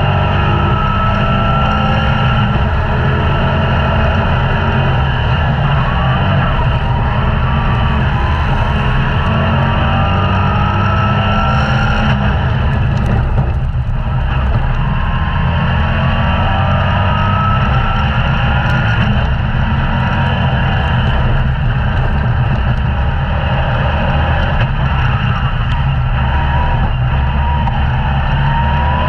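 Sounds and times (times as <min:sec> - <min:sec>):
race car engine accelerating: 0:00.0 - 0:29.0.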